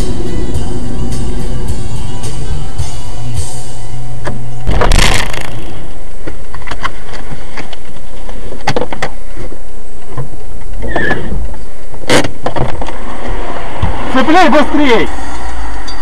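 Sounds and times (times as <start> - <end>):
distorted vehicle noise: 0.0 - 16.0
brief squeak: 10.8 - 11.4.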